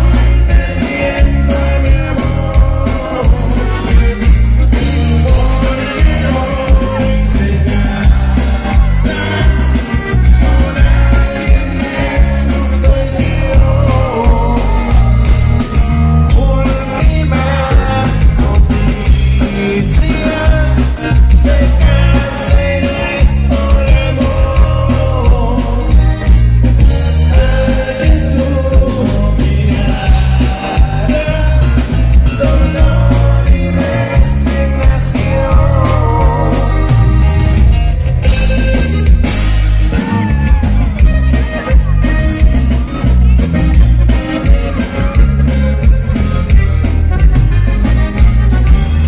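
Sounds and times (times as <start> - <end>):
person singing: 0.0 - 4.1, 4.8 - 26.4, 27.0 - 37.8
live band playing: 0.0 - 49.0.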